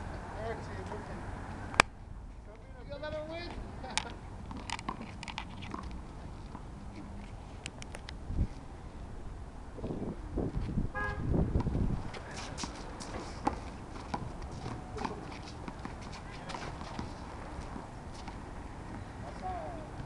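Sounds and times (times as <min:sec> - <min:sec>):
horn toot: 0:10.9 - 0:11.3.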